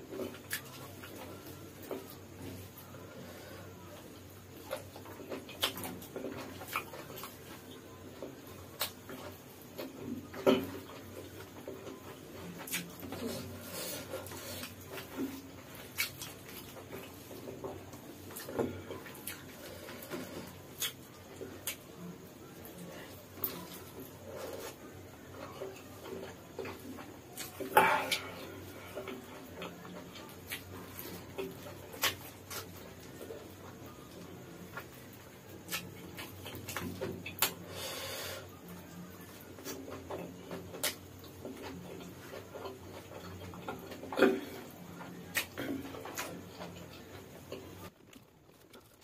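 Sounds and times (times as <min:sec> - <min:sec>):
chewing clicks and smacks: 0:04.6 - 0:07.4, 0:20.2 - 0:21.9
rustling: 0:46.0 - 0:49.0.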